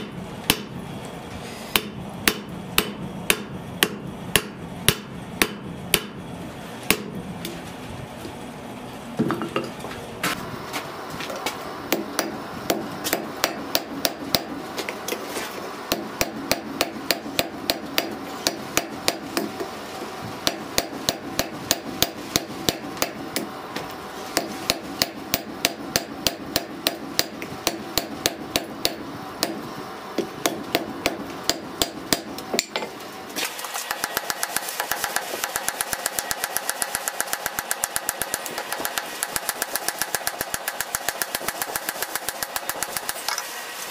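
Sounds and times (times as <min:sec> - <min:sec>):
hammer striking hot steel on anvil: 0:00.0 - 0:00.8, 0:01.7 - 0:06.2, 0:06.9 - 0:07.2, 0:11.9 - 0:14.6, 0:15.9 - 0:19.7, 0:20.4 - 0:23.5, 0:24.3 - 0:33.0, 0:33.9 - 0:43.4.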